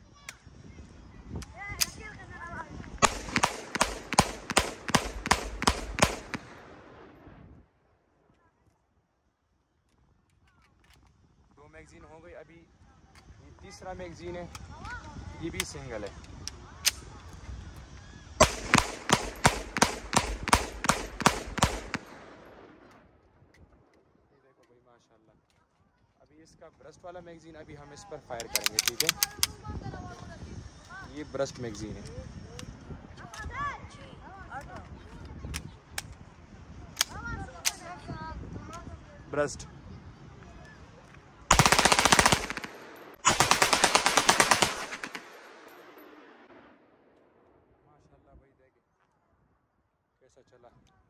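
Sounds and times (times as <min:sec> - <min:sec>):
pistol shots: 0:03.0 - 0:07.2, 0:18.4 - 0:23.0, 0:41.5 - 0:46.7.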